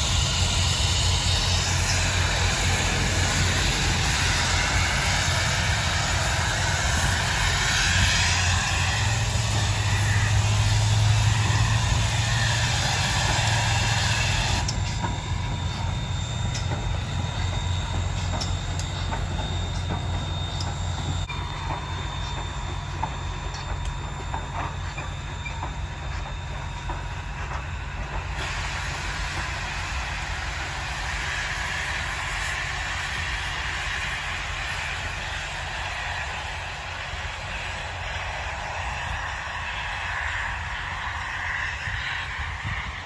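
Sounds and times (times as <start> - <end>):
high ringing tones: 0.0 - 27.4
steam hissing: 0.0 - 43.0
steam locomotive passing: 0.0 - 43.0.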